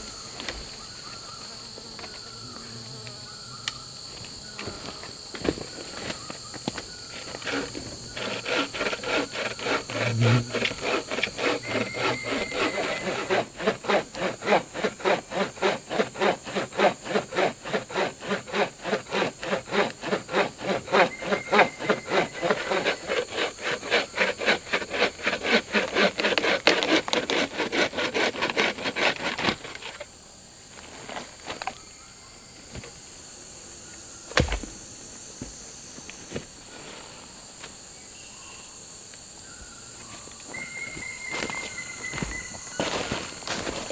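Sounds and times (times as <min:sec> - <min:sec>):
insects chirring: 0:00.0 - 0:43.9
hand saw cutting wood: 0:06.9 - 0:30.1, 0:42.8 - 0:43.9.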